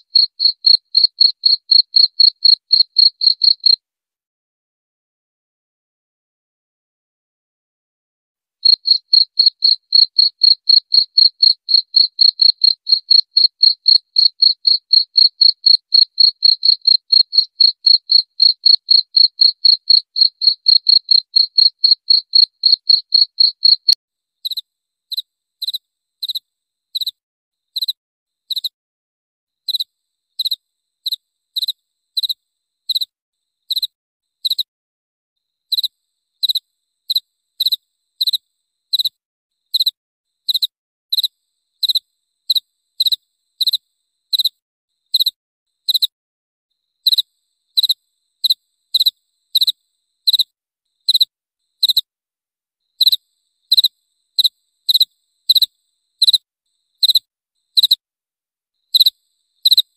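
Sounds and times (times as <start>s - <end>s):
cricket chirping: 0.0s - 3.8s, 8.6s - 26.4s, 27.8s - 28.7s, 29.7s - 34.7s, 35.7s - 39.9s, 40.5s - 46.1s, 46.8s - 52.1s, 52.8s - 58.0s, 58.8s - 59.9s.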